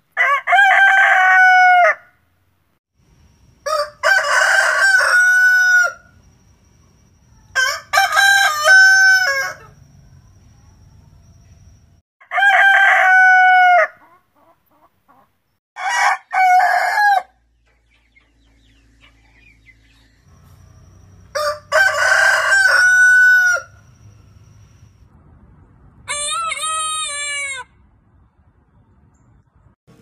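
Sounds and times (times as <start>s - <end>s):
roosters crowing: 0.1s - 2.1s, 3.6s - 6.2s, 7.5s - 9.9s, 12.2s - 14.1s, 15.8s - 17.4s, 20.3s - 24.9s.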